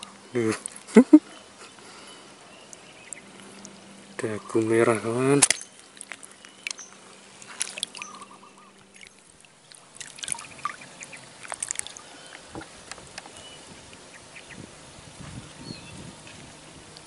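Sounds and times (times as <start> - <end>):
water splashing and dripping: 0.0 - 1.0, 2.7 - 14.5
faint bird chirps: 5.6 - 12.6.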